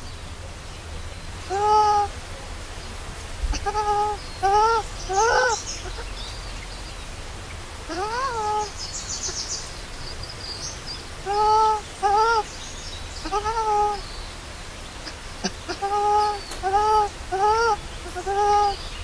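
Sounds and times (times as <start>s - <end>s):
baby monkey coo calls: 1.4s - 2.2s, 3.4s - 6.3s, 7.9s - 9.6s, 11.2s - 12.6s, 13.2s - 14.1s, 15.0s - 18.9s
faint high chirping: 3.5s - 14.3s, 15.0s - 19.0s.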